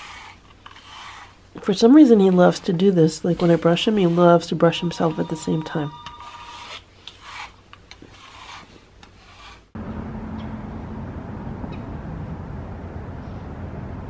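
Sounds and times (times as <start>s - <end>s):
brush rasping through fur: 0.0s - 9.8s
low outdoor rumble: 9.8s - 14.0s.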